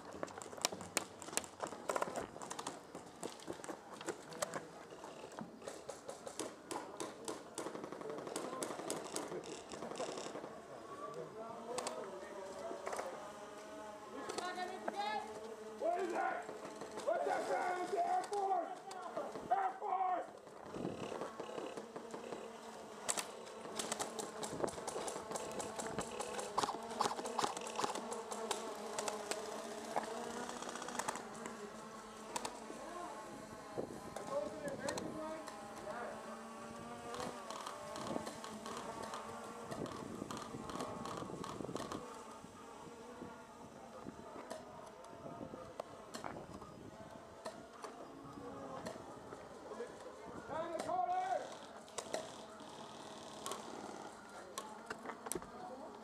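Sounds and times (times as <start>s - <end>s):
drone buzzing: 20.6s - 56.0s.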